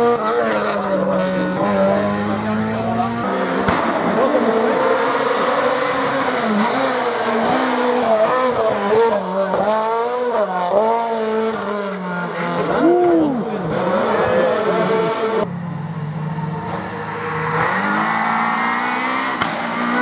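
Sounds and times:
rally car engine revving: 0:00.0 - 0:20.0.

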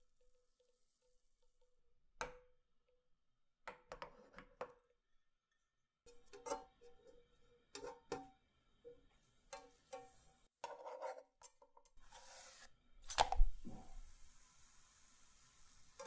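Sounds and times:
spatula tapping frying pan: 0:09.5 - 0:10.8.

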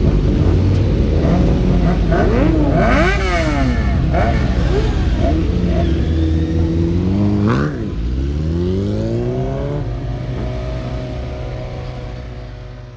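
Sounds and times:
motorcycle engines revving: 0:00.0 - 0:12.9.

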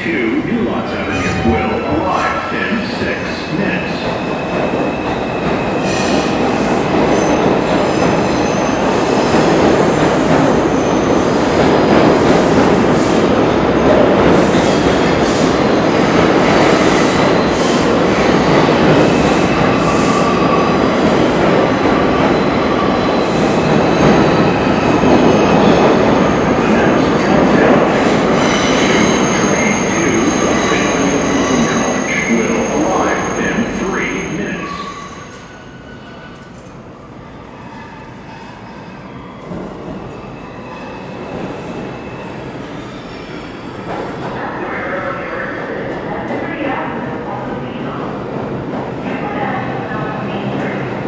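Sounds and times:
train wheels rumbling on rail: 0:00.0 - 0:33.8
steady high tones: 0:00.8 - 0:03.8.

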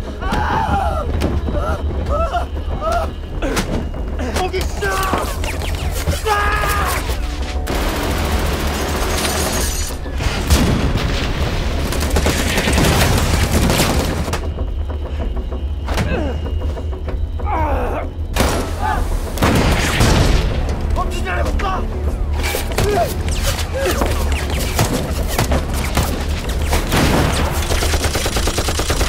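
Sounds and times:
dramatic music: 0:00.0 - 0:29.0
rapid cannon fire: 0:07.7 - 0:14.4, 0:24.0 - 0:29.0.

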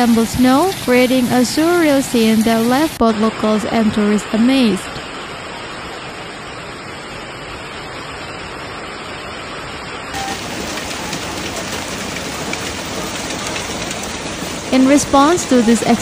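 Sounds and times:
hail and rain pelting: 0:10.2 - 0:16.0.

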